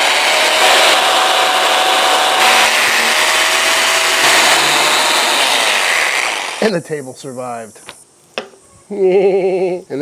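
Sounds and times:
reciprocating saw cutting bone: 0.0s - 6.7s.

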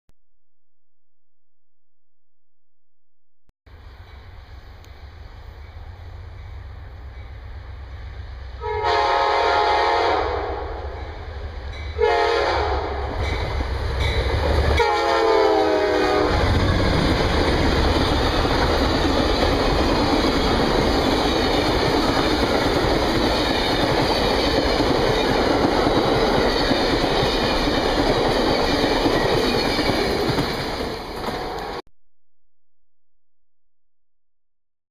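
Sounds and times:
train rushing past: 3.7s - 31.8s
locomotive horn blast: 8.6s - 11.0s, 12.0s - 13.1s, 14.8s - 16.7s
wheels clacking over rail joints: 16.4s - 31.8s.

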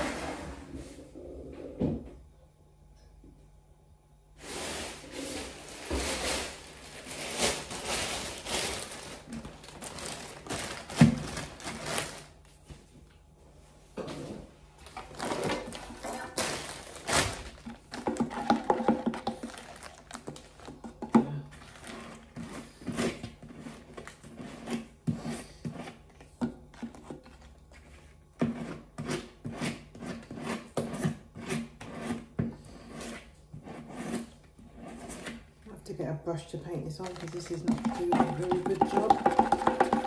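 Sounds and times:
metal knife scraping filler: 28.4s - 35.4s.

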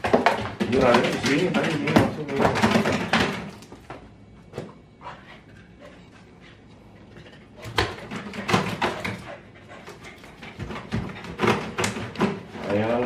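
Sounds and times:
dog sniffing and panting: 4.9s - 12.2s.

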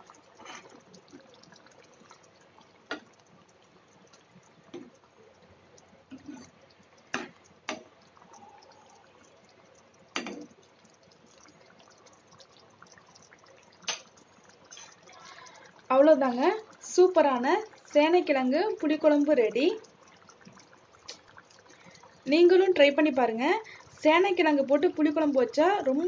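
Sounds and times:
faint wet liquid sounds: 0.0s - 26.0s.

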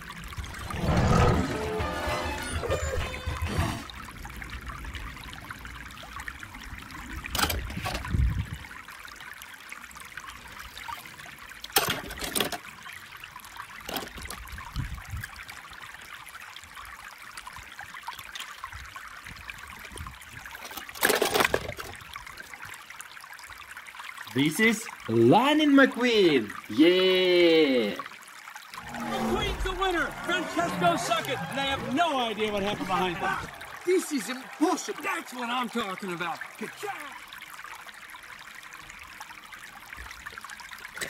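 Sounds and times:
water trickling: 0.0s - 41.0s
toy cars clattering in plastic bucket: 11.7s - 12.6s, 13.8s - 14.4s, 20.6s - 22.0s.

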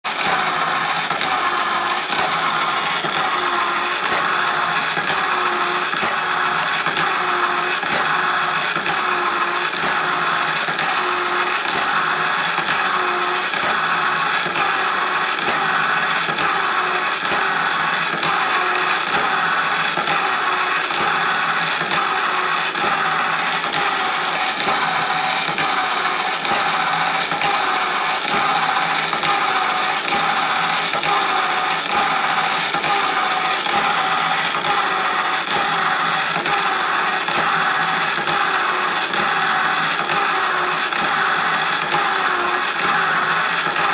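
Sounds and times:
electric motor running: 0.1s - 43.9s
hacksaw blade sawing metal: 0.2s - 5.3s, 5.9s - 7.1s, 7.7s - 12.8s, 13.5s - 20.2s, 21.8s - 29.4s.

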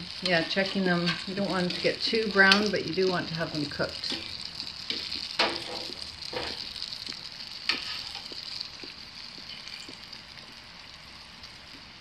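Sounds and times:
oil sizzling: 0.0s - 12.0s.

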